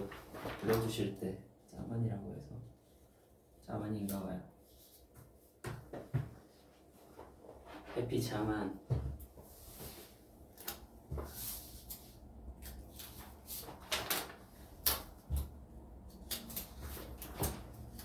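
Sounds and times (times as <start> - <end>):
paper rustling: 0.0 - 1.0, 10.6 - 15.5, 16.3 - 18.0.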